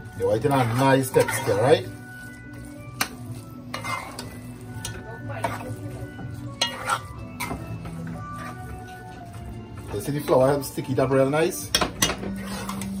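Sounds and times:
meat sizzling in frying pan: 0:00.0 - 0:04.9
metal spoon scraping pan: 0:00.0 - 0:13.0.

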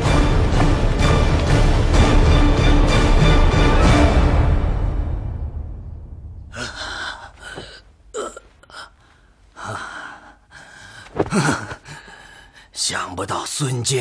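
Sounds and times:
music: 0:00.0 - 0:06.3.

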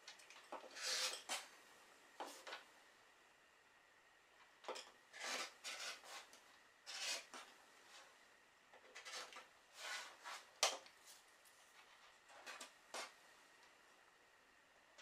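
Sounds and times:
rotary cutter slicing fabric: 0:05.1 - 0:07.4.

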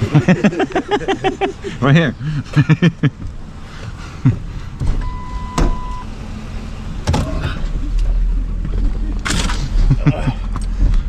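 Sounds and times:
electronic beep: 0:05.0 - 0:06.1.

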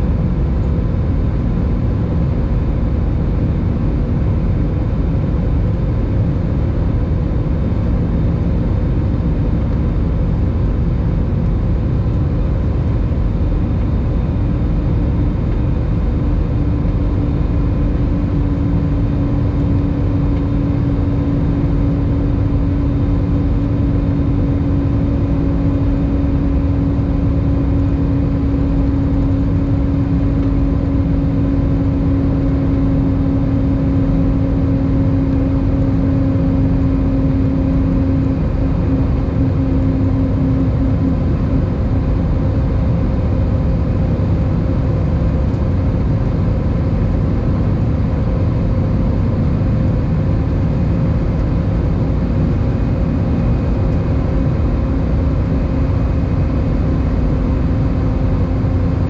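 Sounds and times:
humming drone: 0:00.0 - 0:59.0
jet engine rumble in cabin: 0:00.0 - 0:59.0.

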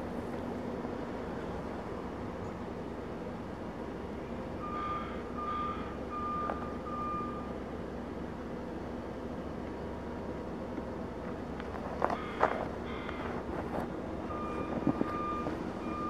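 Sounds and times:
steady background rumble: 0:00.0 - 0:16.0
short electronic beeps: 0:04.6 - 0:07.5, 0:14.3 - 0:16.0.

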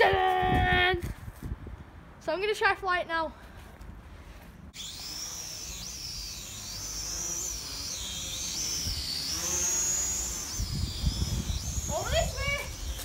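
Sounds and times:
toy drone whine: 0:04.8 - 0:13.0.

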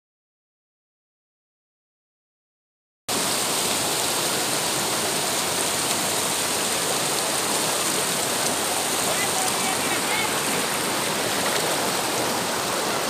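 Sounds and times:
stream rushing over rocks: 0:03.1 - 0:13.0.

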